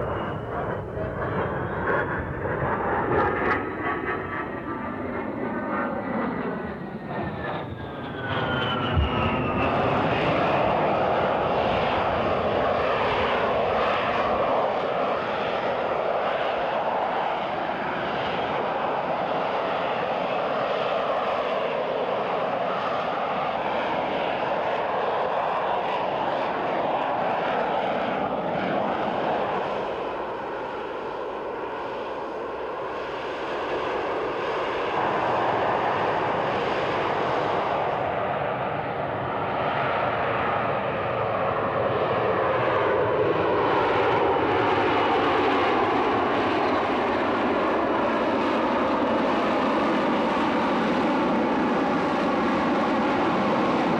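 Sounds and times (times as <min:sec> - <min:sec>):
hovering jet engine noise: 0:00.0 - 0:53.9.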